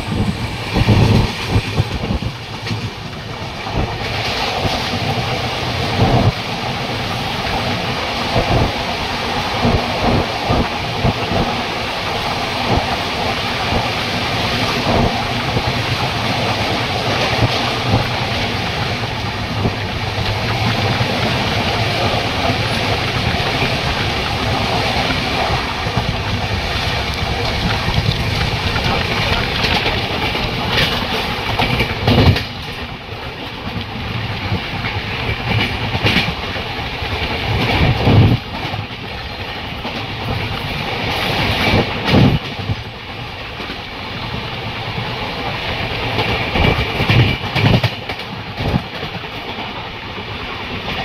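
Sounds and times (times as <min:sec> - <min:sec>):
rushing air: 0:00.0 - 0:38.8
train wheels rumbling on rail: 0:00.0 - 0:51.0.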